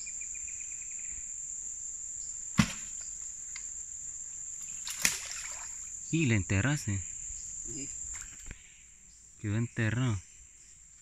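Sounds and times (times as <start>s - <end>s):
crickets chirping: 0.0s - 11.0s
wooden pole thud in water: 2.6s - 3.1s, 4.8s - 5.7s.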